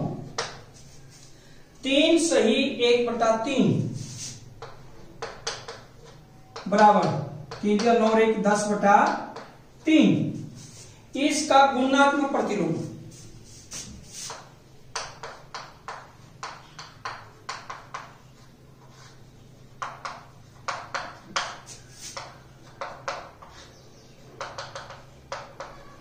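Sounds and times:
chalk tapping and scratching: 3.9s - 9.6s, 10.4s - 10.9s, 12.8s - 26.0s.

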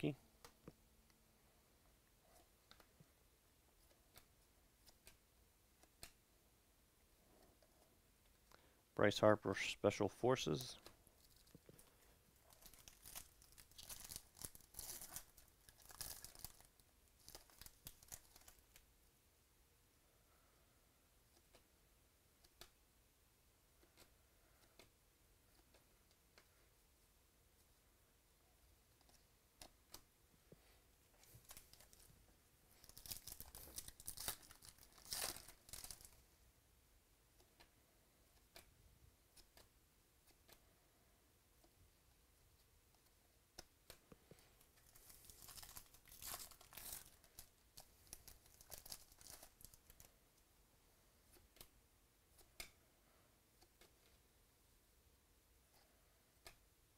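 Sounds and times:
wrapper crinkling and tearing: 12.4s - 18.8s, 32.7s - 36.2s, 44.8s - 50.1s.

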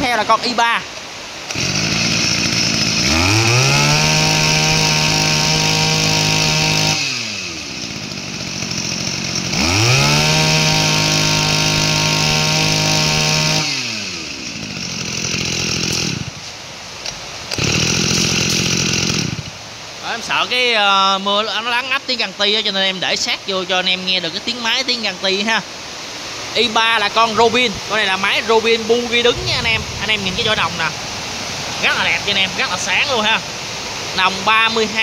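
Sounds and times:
brush cutter engine revving: 1.4s - 19.6s, 27.6s - 35.0s
heavy rain: 25.7s - 35.0s.

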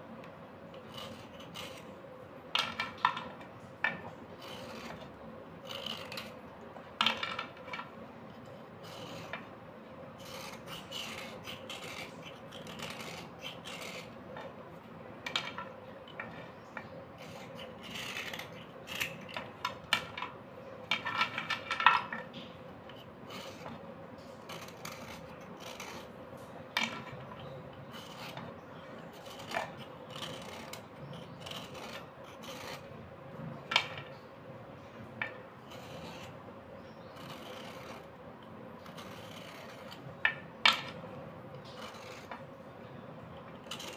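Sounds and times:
knife scraping slate pencil: 0.7s - 2.0s, 2.6s - 6.4s, 7.0s - 33.0s, 35.2s - 42.6s, 43.3s - 43.9s.

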